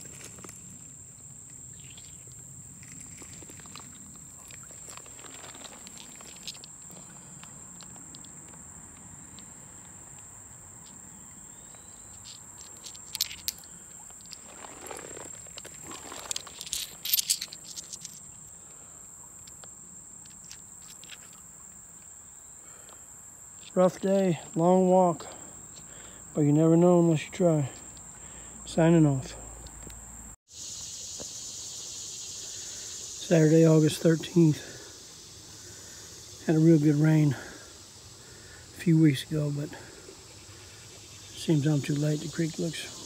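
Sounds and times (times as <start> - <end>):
insect chorus: 0.0 - 43.0
handling clicks and rustling: 1.9 - 8.6, 12.0 - 18.3.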